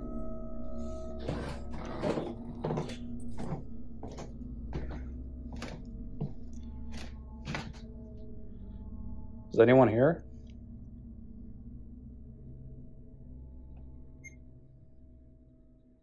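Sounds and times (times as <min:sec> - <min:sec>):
droning music: 0:00.0 - 0:16.0
footsteps on wooden floor: 0:01.3 - 0:06.6.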